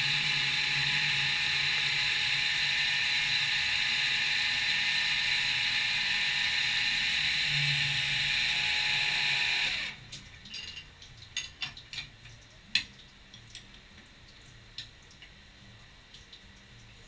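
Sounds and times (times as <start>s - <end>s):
milling machine spindle winding down: 0.0s - 10.0s
light drips: 10.1s - 17.0s.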